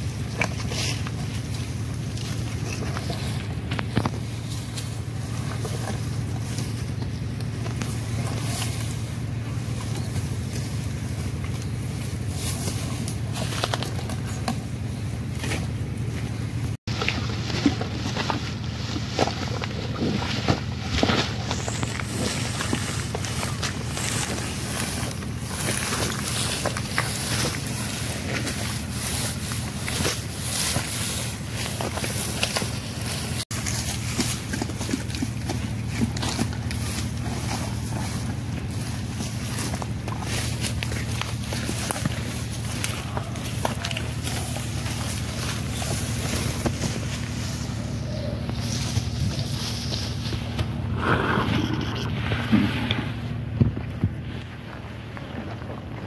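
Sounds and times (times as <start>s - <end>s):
low rumble: 0.0s - 56.0s
wind rumble on microphone: 48.3s - 56.0s.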